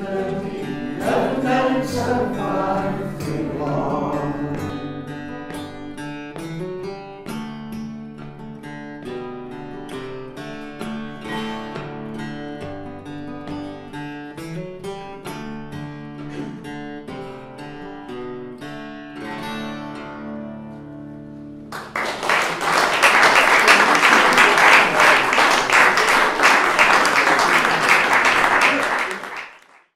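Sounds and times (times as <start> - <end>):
acoustic guitar picking: 0.0 - 21.7
audience applause: 21.7 - 29.9.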